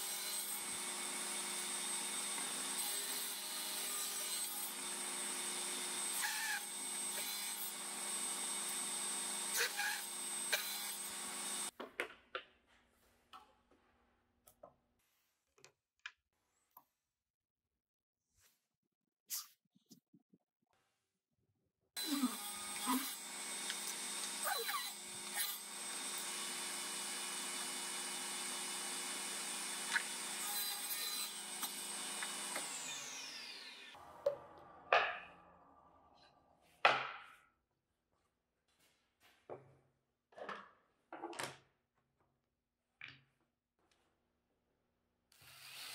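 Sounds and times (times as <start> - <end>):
table saw running: 0.0 - 11.7, 22.0 - 34.0.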